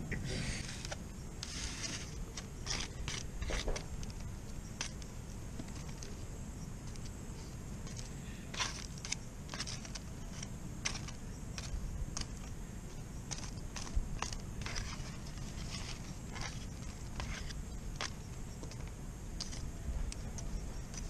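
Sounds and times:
low steady rumble: 0.0 - 21.0
metal fork scraping on foil: 0.5 - 4.2.

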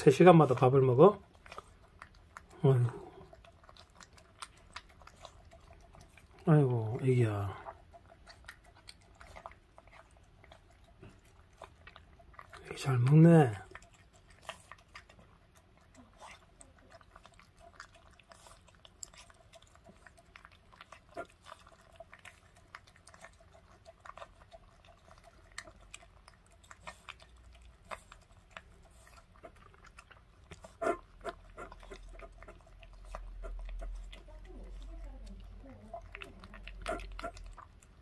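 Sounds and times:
puppy crunching kibble: 0.0 - 38.0
kibble clicking on metal bowl: 17.0 - 38.0.

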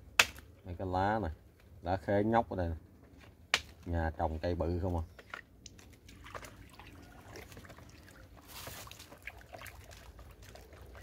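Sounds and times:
water sloshing and swirling: 5.7 - 11.0.

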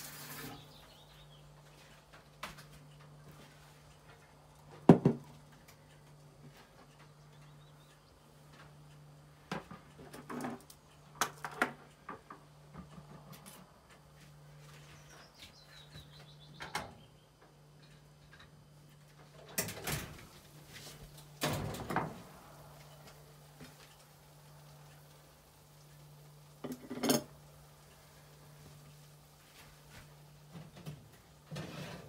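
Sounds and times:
low steady hum: 0.0 - 32.0
kitchen items knocking and clattering: 26.6 - 27.3
scraping or sliding noises: 31.5 - 32.0.

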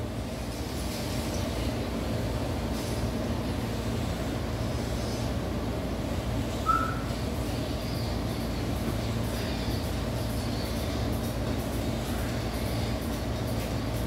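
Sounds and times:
low mechanical drone: 0.0 - 14.0
short squeak: 6.7 - 7.1.

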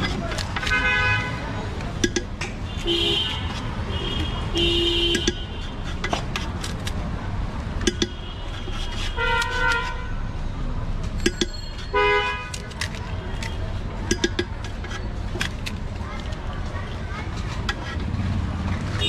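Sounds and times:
low traffic rumble: 0.0 - 19.0
vehicle horns honking: 0.6 - 1.7, 2.6 - 5.9, 7.9 - 10.2, 11.8 - 12.6.

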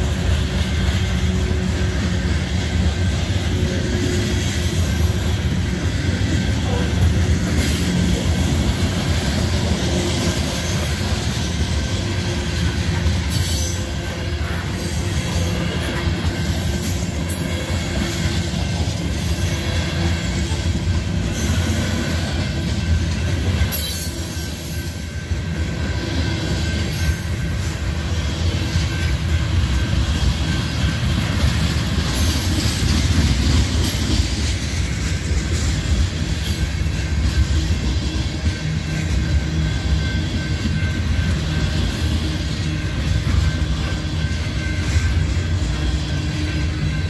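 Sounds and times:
train wheels rumbling on rail: 0.0 - 47.0
high brake squeal: 23.6 - 32.9.

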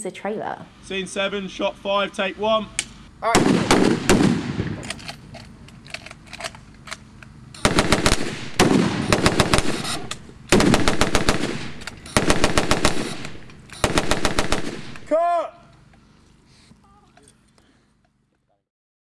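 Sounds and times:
machine gun bursts: 3.4 - 5.1, 7.6 - 15.1.

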